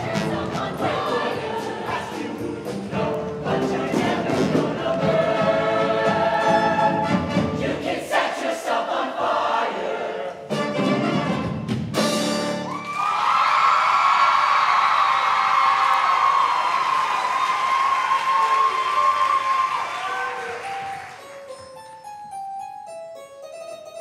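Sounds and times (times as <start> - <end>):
choir singing pop song with band: 0.0 - 10.5
audience cheering and whooping: 12.6 - 21.2.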